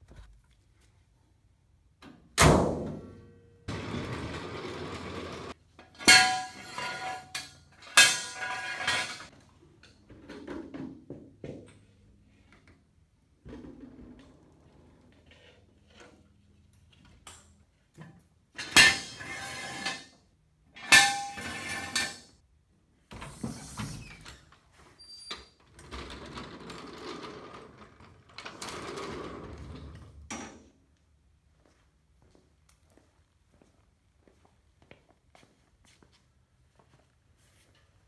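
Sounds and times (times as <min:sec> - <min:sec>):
metal rattling and scraping: 0:03.7 - 0:09.3
ringing metal clangs: 0:06.0 - 0:09.3.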